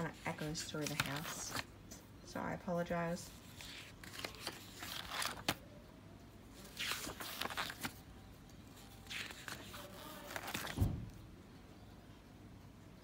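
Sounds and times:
paper pages rustling: 0:00.0 - 0:01.7, 0:03.4 - 0:05.6, 0:06.6 - 0:08.0, 0:08.7 - 0:10.8.

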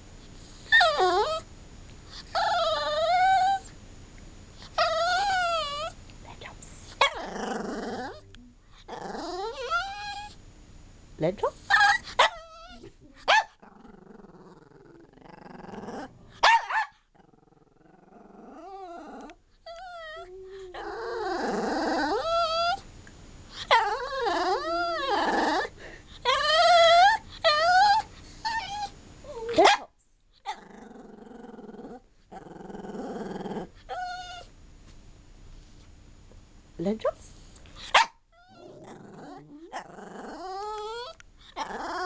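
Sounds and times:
dog whining and howling: 0:00.6 - 0:01.5, 0:02.2 - 0:03.7, 0:04.7 - 0:06.0, 0:07.0 - 0:08.3, 0:08.9 - 0:10.4, 0:11.7 - 0:16.8, 0:17.5 - 0:22.8, 0:23.6 - 0:29.6, 0:30.5 - 0:34.5, 0:37.9 - 0:42.0
dog growly grumbles: 0:04.8 - 0:10.3, 0:11.7 - 0:16.3, 0:17.2 - 0:22.8, 0:23.7 - 0:29.6, 0:30.5 - 0:34.4, 0:38.4 - 0:42.0
dog yipping: 0:16.4 - 0:16.9, 0:37.9 - 0:38.2.

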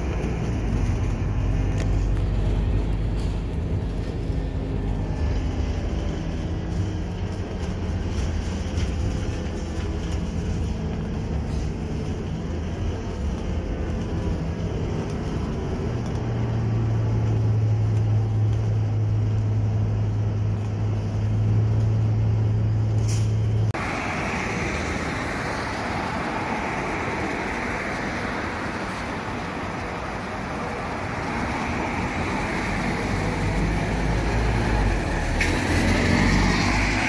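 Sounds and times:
bus engine drone: 0:00.0 - 0:37.0
street traffic: 0:00.0 - 0:37.0.

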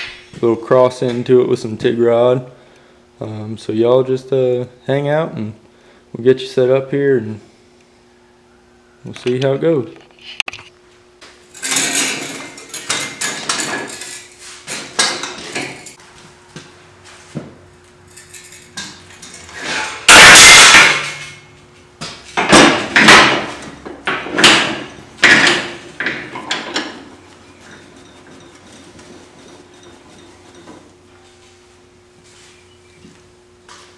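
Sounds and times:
steel bar scraping on metal: 0:19.5 - 0:21.3, 0:27.5 - 0:30.9
loud metal crash: 0:19.6 - 0:21.4.

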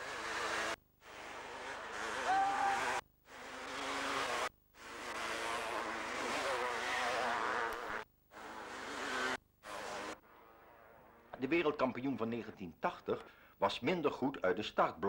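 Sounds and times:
motocross bikes racing past: 0:00.0 - 0:11.4.

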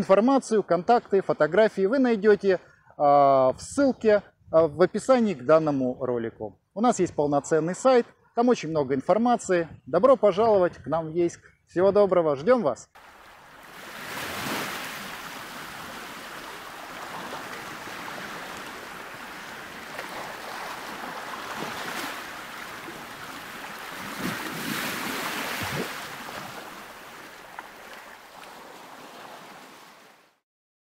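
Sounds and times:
waves washing onto shore: 0:13.0 - 0:30.4
wind on microphone: 0:13.7 - 0:27.3.

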